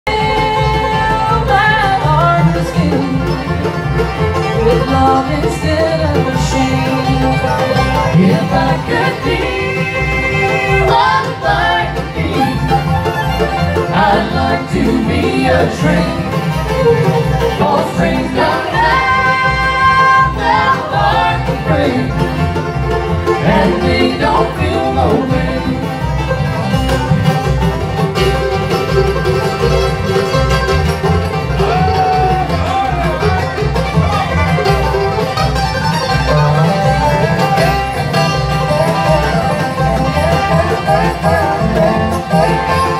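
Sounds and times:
banjo: 0.0 - 42.9
fiddle: 0.0 - 42.9
mandolin: 0.0 - 42.9
upright bass: 0.0 - 42.9
acoustic guitar: 0.1 - 42.9
resonator guitar: 0.1 - 42.9.

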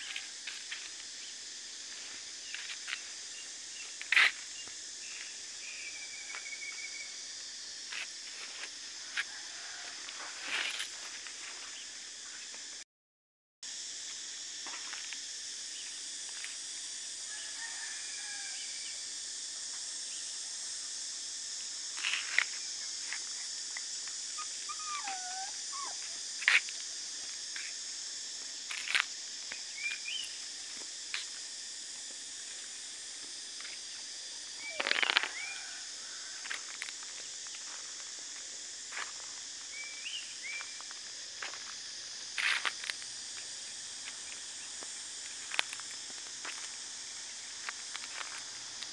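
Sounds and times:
steady high hiss: 13.7 - 48.9.

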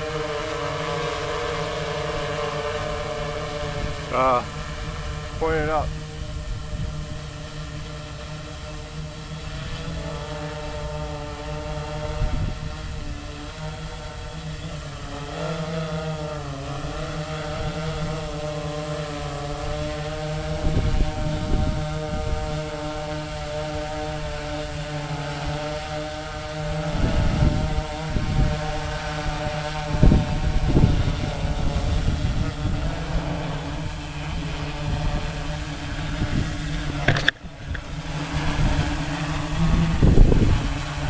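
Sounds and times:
drone propellers humming: 0.0 - 41.0
wind thumps on microphone: 36.1 - 41.0.

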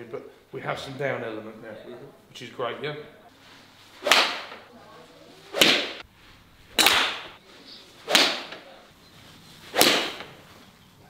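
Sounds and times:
golf club swishing: 3.4 - 4.7, 5.4 - 10.7.

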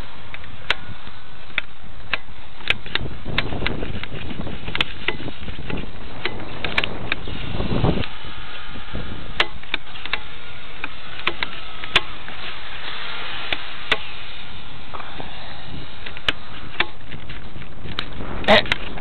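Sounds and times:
wind on microphone: 2.6 - 10.1, 15.0 - 19.0.

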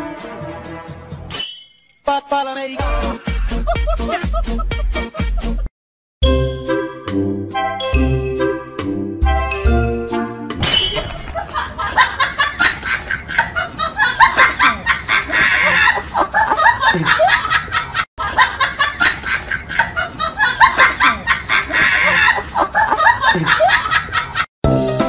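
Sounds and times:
people laughing and snickering: 2.9 - 5.7, 11.4 - 24.5.

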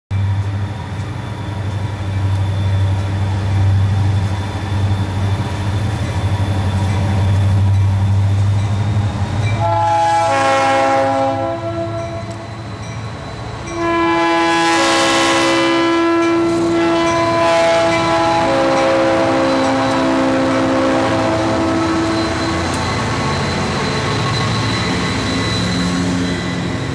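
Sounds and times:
locomotive engine rumble: 0.1 - 26.9
train air horn blasts: 9.6 - 12.5, 13.7 - 22.4.

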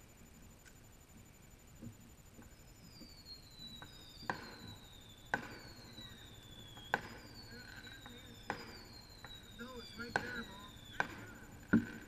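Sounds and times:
distant firework whistles: 2.4 - 12.0
firework pops: 3.8 - 5.7, 6.7 - 9.4, 10.0 - 12.0.

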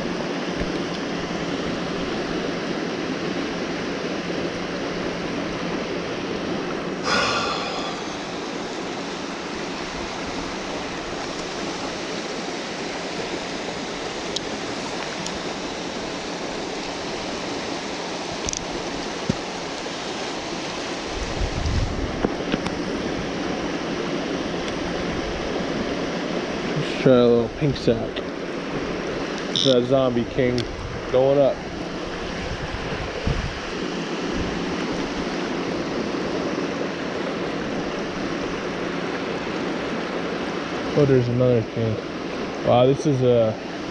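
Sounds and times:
fast-flowing creek water: 0.0 - 43.9
brief pitched call: 29.6 - 29.8.

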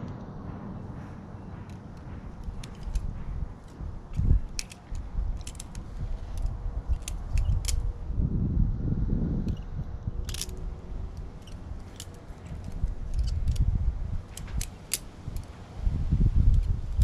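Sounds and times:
low rumbling: 0.0 - 17.0
balisong clicks and clacks: 0.9 - 7.9, 10.3 - 15.6.

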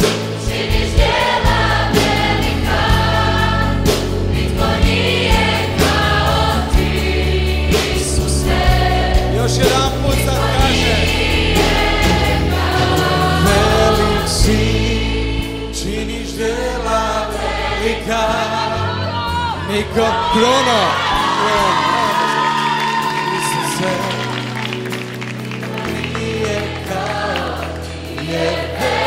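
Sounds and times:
acoustic guitars with steady beat: 0.0 - 18.6
choir singing worship song: 0.0 - 29.0.

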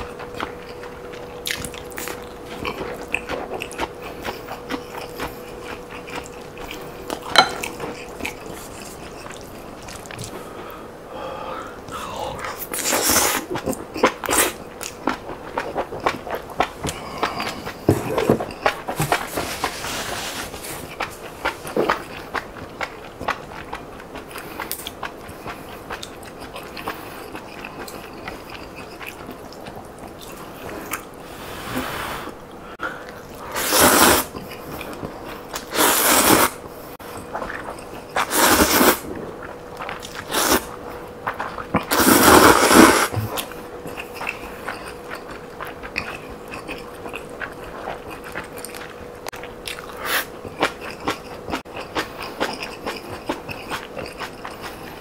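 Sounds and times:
quiet chewing: 0.0 - 10.8, 11.8 - 19.8, 20.4 - 31.2, 34.3 - 35.7, 36.4 - 55.0
slurping noodles: 12.5 - 14.6, 30.9 - 32.4, 33.4 - 34.4, 35.6 - 36.6, 37.4 - 39.1, 40.0 - 40.7, 41.8 - 43.5.

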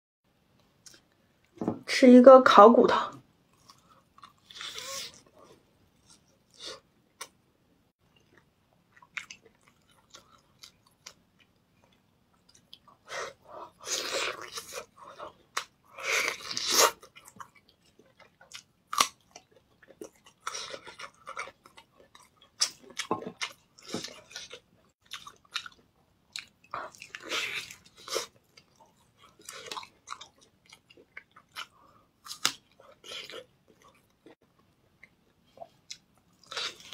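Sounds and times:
person chewing and biting meat: 12.5 - 34.4, 35.9 - 36.9.

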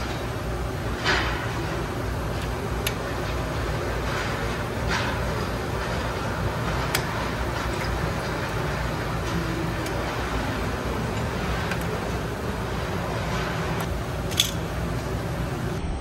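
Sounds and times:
workshop rumble with hiss: 0.0 - 15.8.

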